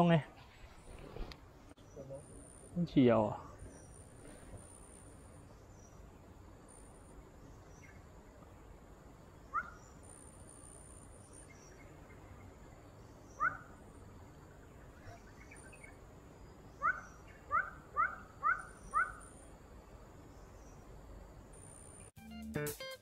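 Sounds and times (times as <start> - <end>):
low steady hiss: 0.0 - 22.1
high insect whine: 0.7 - 22.1
bird chirps: 9.4 - 13.8, 14.6 - 19.5.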